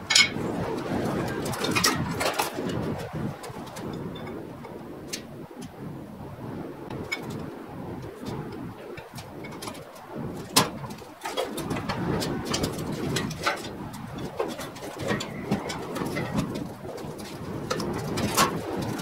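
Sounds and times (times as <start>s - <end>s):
metal knocks and clanks: 0.0s - 0.4s, 10.5s - 18.6s.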